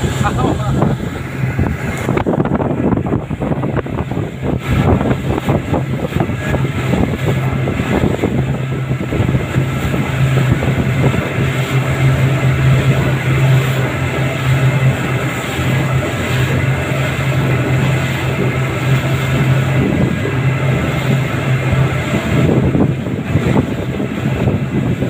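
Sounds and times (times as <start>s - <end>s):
outboard motors droning: 0.0s - 25.0s
rush of wind and water: 0.0s - 25.0s.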